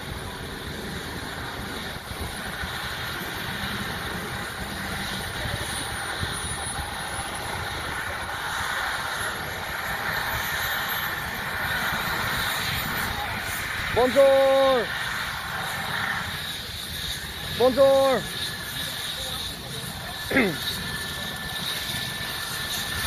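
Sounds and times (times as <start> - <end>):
helicopter engine and rotor: 0.0 - 23.0
high whine rising in pitch: 0.0 - 23.0.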